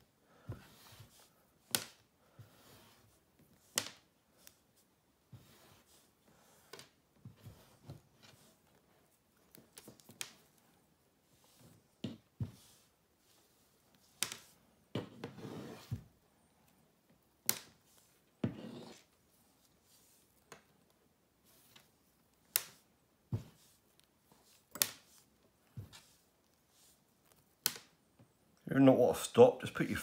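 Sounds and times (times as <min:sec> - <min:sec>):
twine and rope rustling: 0:00.0 - 0:28.3
netting needle clicks and taps: 0:27.2 - 0:28.3.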